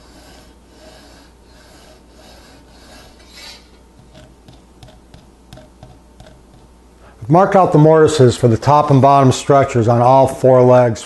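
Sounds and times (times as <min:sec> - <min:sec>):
pencil scratching on wood: 0:00.0 - 0:06.7.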